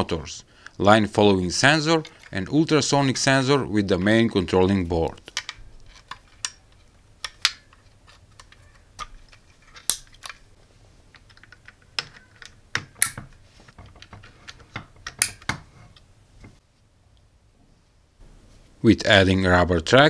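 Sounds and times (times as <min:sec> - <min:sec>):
plastic cable plugs clicking: 0:05.2 - 0:10.4, 0:11.1 - 0:15.6.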